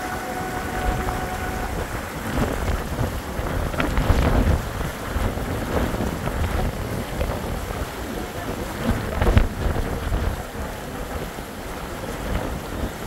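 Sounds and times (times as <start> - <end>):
steady tone: 0.0 - 2.9
wind buffeting microphone: 0.0 - 13.0.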